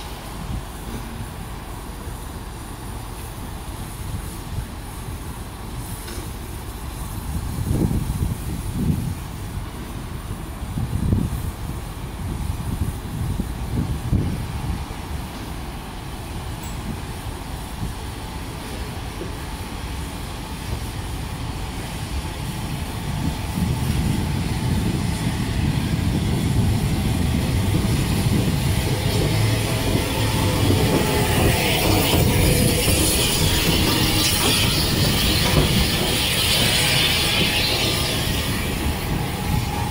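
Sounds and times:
steam hiss: 0:00.0 - 0:39.9
steam train rumbling: 0:00.0 - 0:39.9.

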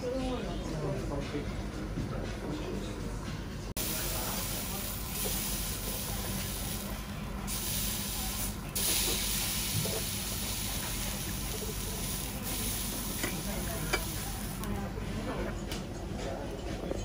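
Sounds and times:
meat sizzling on a grill: 0:03.8 - 0:14.7.

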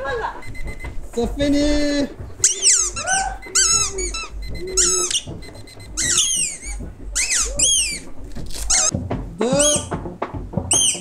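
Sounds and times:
people shrieking and squealing: 0:02.4 - 0:05.3, 0:06.0 - 0:08.1.

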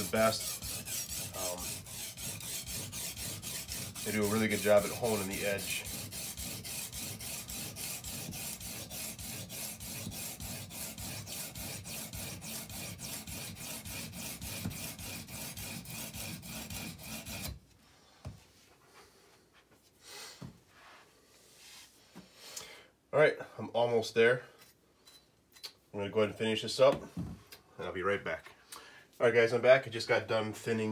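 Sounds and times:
sharpening stone rasping on knife: 0:00.0 - 0:17.6.

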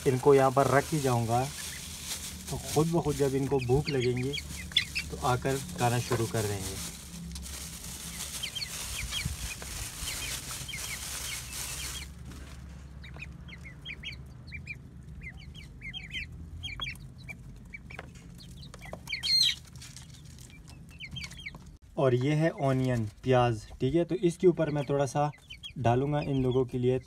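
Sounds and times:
plastic bag rustling: 0:00.0 - 0:12.8, 0:19.4 - 0:21.0
chicks and ducklings peeping: 0:00.0 - 0:21.8, 0:22.4 - 0:27.0.

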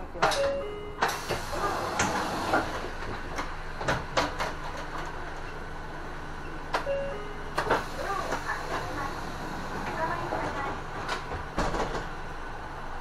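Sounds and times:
bus engine idling: 0:00.0 - 0:13.0
short beep: 0:06.4 - 0:07.4.

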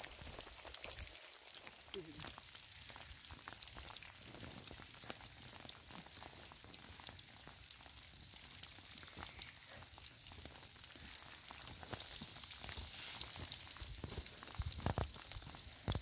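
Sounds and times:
light rain pattering: 0:00.0 - 0:16.0.

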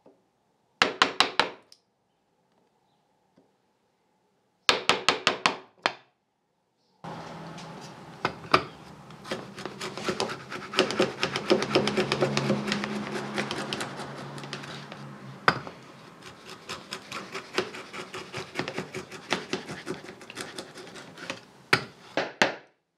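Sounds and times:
router plane scraping wood: 0:07.1 - 0:22.2.

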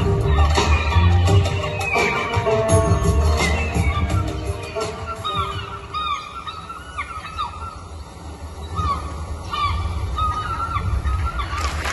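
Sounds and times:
seabird cries: 0:03.4 - 0:11.9.

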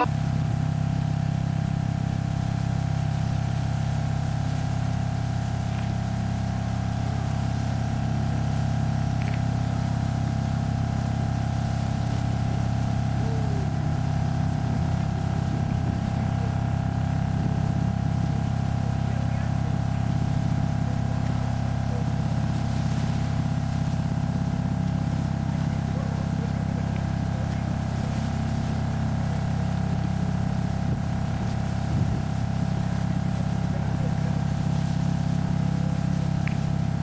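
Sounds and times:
steady multi-tone hum: 0:00.0 - 0:37.0.

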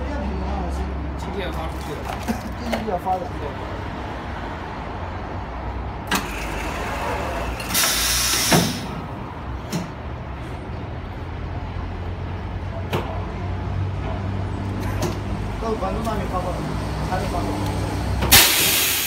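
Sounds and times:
loud hiss: 0:07.6 - 0:08.9, 0:18.3 - 0:19.0.

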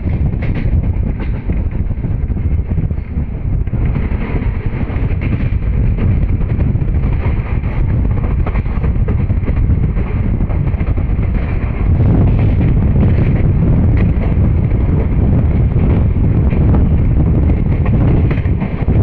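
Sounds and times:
passing train coaches: 0:00.0 - 0:19.0
train wheels rumbling on rails: 0:00.0 - 0:19.0
wind buffeting microphone: 0:00.0 - 0:19.0.

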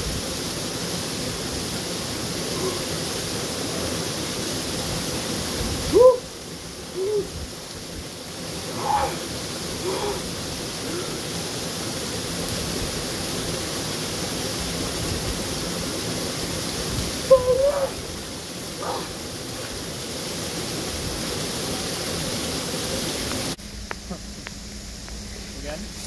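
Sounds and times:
waterfall splashing on rock: 0:00.0 - 0:26.0
man shouting: 0:05.9 - 0:06.3, 0:08.8 - 0:10.3, 0:17.3 - 0:18.0.

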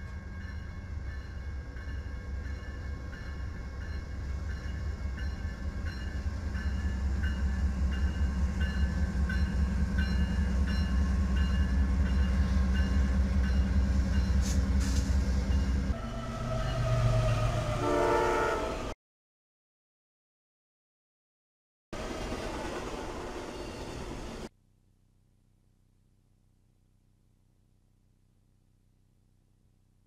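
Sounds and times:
crossing bell ringing: 0:00.0 - 0:14.4
diesel locomotive rumble: 0:00.0 - 0:18.9
train horn chord: 0:10.1 - 0:19.0.

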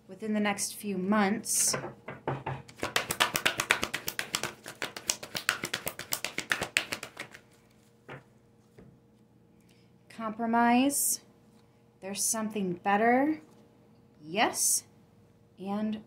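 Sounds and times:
cards being shuffled: 0:02.7 - 0:08.2.

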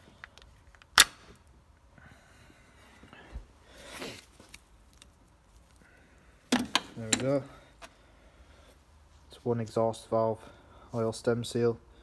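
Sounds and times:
soft breathy noise: 0:01.9 - 0:04.6, 0:05.6 - 0:06.5, 0:07.4 - 0:12.0
faint handling rustle: 0:02.5 - 0:06.2.

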